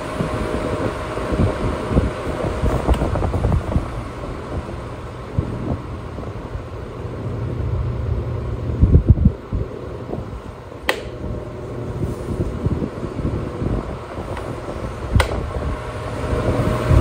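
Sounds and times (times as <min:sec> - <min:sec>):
table fan humming: 0:00.0 - 0:17.0
sharp click: 0:10.8 - 0:11.2, 0:15.1 - 0:15.4.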